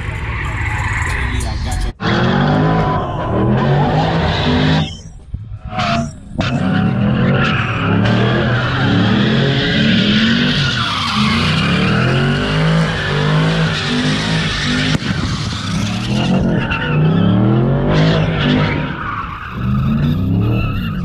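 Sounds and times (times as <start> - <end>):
car engine revving: 0.0 - 21.0
tyres screeching: 0.0 - 21.0
sharp crack: 14.6 - 16.2.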